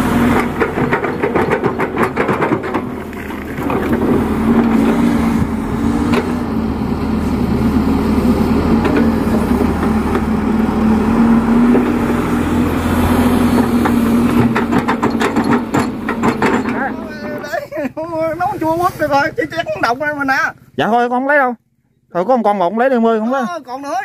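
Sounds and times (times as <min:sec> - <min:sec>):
excavator diesel engine running: 0:00.0 - 0:21.0
sharp knocks: 0:00.2 - 0:05.0, 0:13.6 - 0:17.0.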